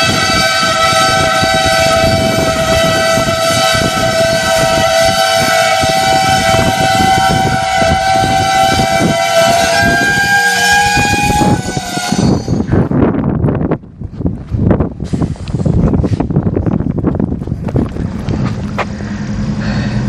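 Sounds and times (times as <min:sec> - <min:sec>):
train air horn blast: 0:00.0 - 0:12.9
train rumbling: 0:00.0 - 0:20.0.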